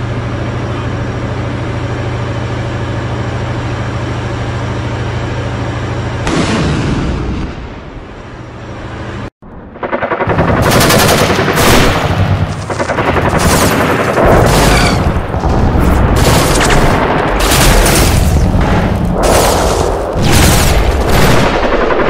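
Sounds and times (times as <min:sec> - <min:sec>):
automatic gunfire bursts: 0:10.2 - 0:15.2.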